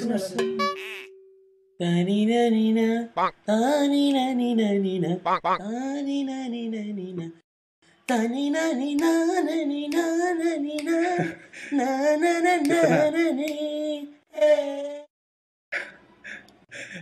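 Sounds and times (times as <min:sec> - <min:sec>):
person singing: 0:01.8 - 0:07.4, 0:08.0 - 0:15.1.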